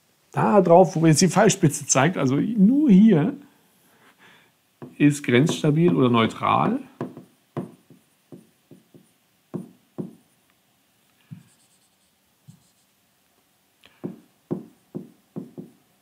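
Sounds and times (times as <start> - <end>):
stylus tapping and scraping on screen: 4.8 - 10.2, 11.1 - 12.9.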